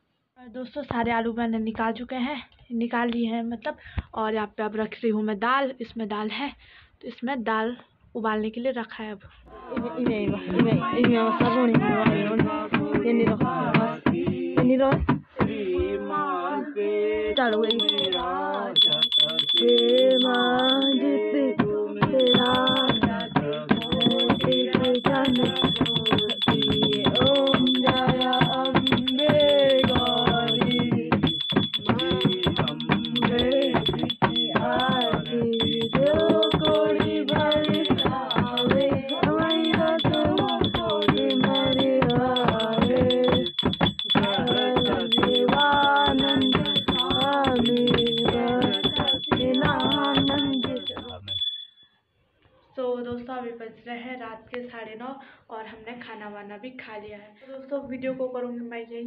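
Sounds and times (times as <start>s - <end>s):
devotional singing: 9.7s - 51.6s
fast steady beat: 17.4s - 21.0s, 22.2s - 51.7s
hand bell ringing rapidly: 17.4s - 21.0s, 22.2s - 51.8s.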